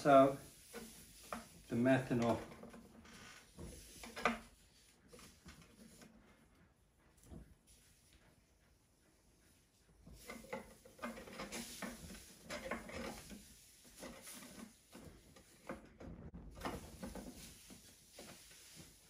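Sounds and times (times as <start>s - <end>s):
towel rustling over tin can: 10.1s - 15.6s, 16.6s - 19.0s.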